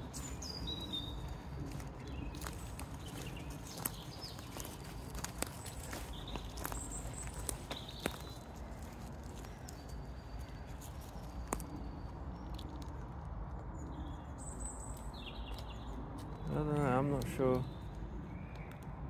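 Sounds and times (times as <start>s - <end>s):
footsteps crunching leaf litter: 0.0s - 9.8s
wind rumble: 0.0s - 19.0s
twigs snapping: 1.2s - 10.0s, 10.8s - 13.2s.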